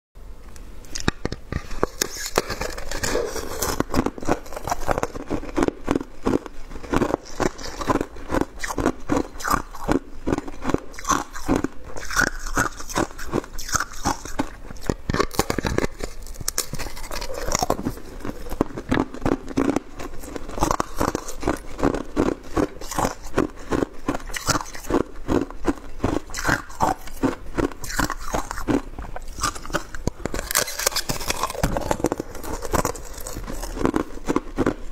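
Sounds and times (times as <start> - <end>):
shaved ice crunching: 26.3 - 34.8.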